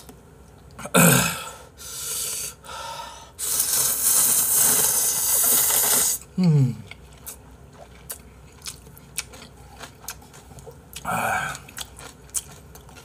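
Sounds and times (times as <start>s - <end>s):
person slurping noodles: 3.4s - 6.7s.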